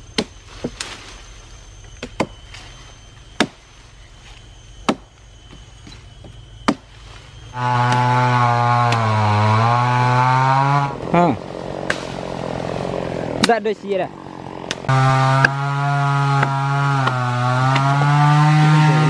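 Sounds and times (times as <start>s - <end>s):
axe chopping wood: 0.1s - 0.9s, 2.0s - 2.4s, 3.4s - 3.6s, 4.8s - 5.1s, 6.6s - 6.9s, 7.8s - 9.1s, 11.8s - 12.3s, 13.4s - 13.6s, 14.6s - 19.0s
chainsaw engine running: 7.4s - 19.0s.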